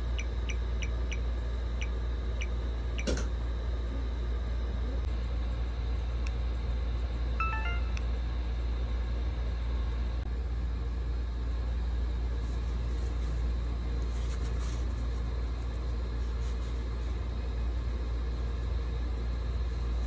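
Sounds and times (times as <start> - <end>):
electronic camera chime: 7.4 - 8.0.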